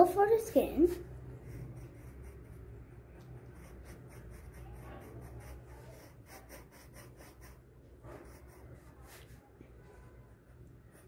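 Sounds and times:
pencil scribbling on paper: 0.9s - 9.4s.

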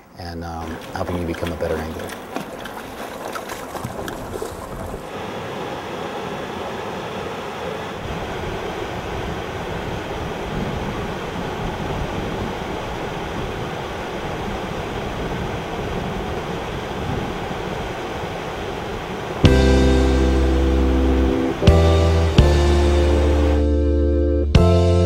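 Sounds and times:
river water rushing: 0.6s - 23.6s.

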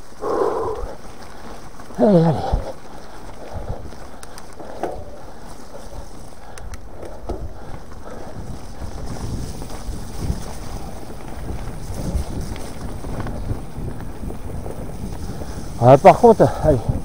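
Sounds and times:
wind buffeting microphone: 0.0s - 17.0s
bike knocks on trail: 4.2s - 8.0s.

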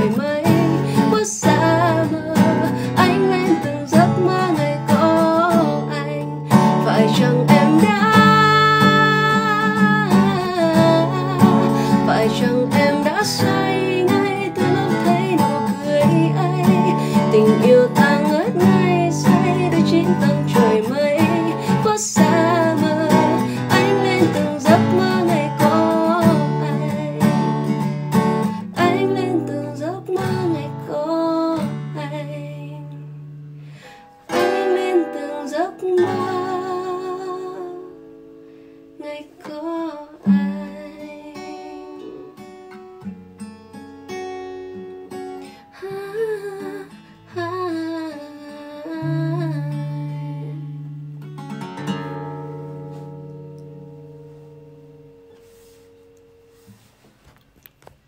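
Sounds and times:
woman singing pop ballad: 0.0s - 33.1s, 34.3s - 38.0s, 39.0s - 42.2s, 45.6s - 50.7s
acoustic guitar strumming: 0.0s - 46.0s, 49.0s - 57.4s.

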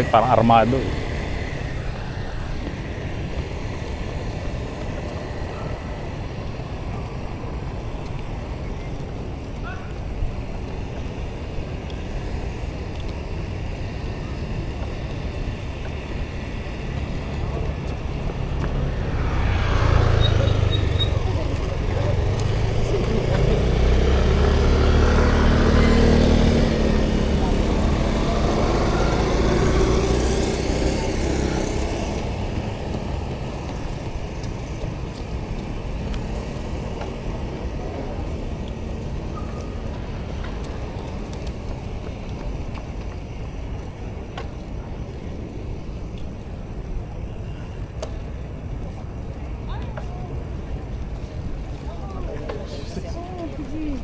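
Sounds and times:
low traffic rumble: 0.0s - 54.0s
wind and road noise: 0.0s - 54.0s
vehicle engine passing by: 15.5s - 42.2s.

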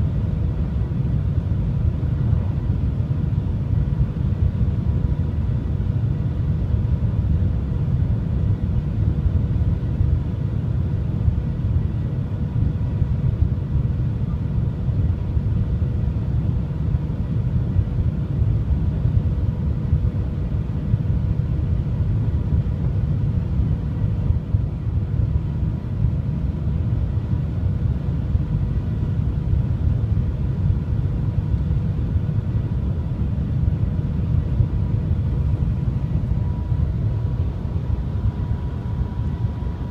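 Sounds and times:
faint steady hum tones: 0.0s - 39.9s
train low rumble: 18.8s - 39.9s.

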